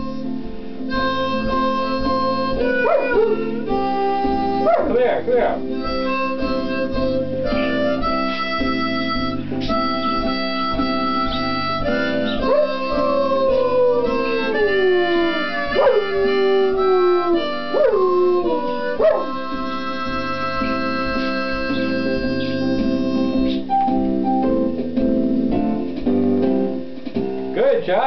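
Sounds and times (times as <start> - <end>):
blues harmonica with band: 0.0 - 23.7
dog howling: 2.6 - 3.6, 12.2 - 19.5.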